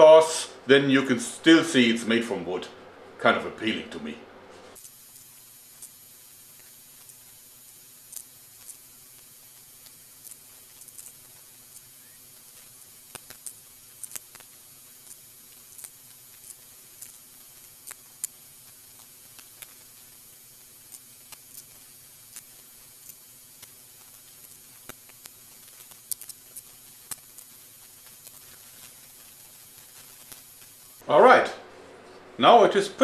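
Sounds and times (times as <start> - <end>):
steady low hiss: 0.0 - 33.0
paintbrush clicks and scratches: 4.8 - 31.0.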